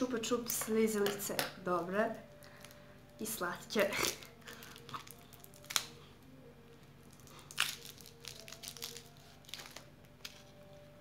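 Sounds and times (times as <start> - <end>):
plastic wrapper crinkling: 4.0 - 6.0, 7.0 - 10.6.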